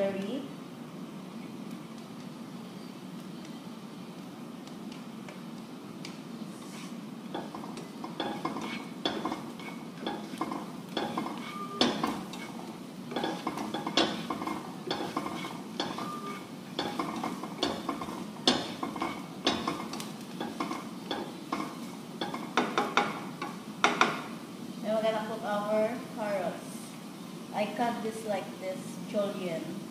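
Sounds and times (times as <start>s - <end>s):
steady low hum: 0.0s - 29.9s
spatula scraping frying pan: 6.7s - 23.6s.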